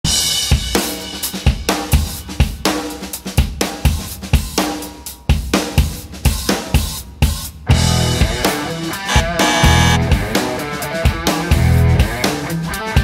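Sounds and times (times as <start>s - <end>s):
music with drum beat: 0.1s - 13.0s.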